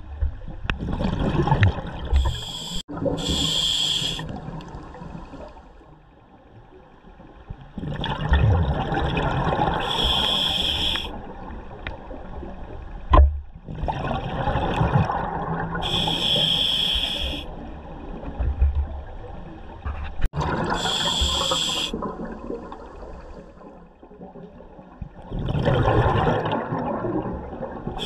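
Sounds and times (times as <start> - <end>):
rush of exhaled bubbles: 0.8 - 5.5, 7.8 - 11.4, 13.7 - 16.5, 20.3 - 28.0
diver breathing through regulator: 2.2 - 4.3, 9.8 - 11.2, 15.8 - 17.5, 20.7 - 22.0.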